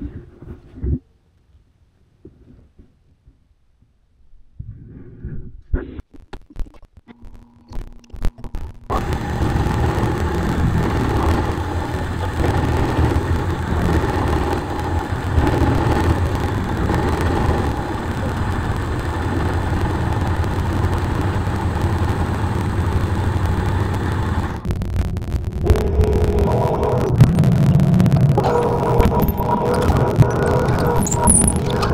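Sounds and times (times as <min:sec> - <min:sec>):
milling machine running: 0:08.9 - 0:31.9.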